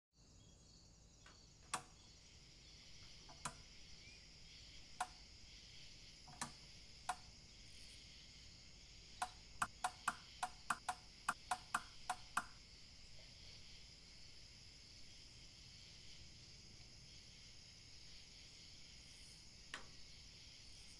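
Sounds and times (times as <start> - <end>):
night insects chirring: 0.2 - 20.9
sharp clicks: 1.7 - 2.0, 3.3 - 3.6, 6.3 - 7.2, 9.2 - 12.6.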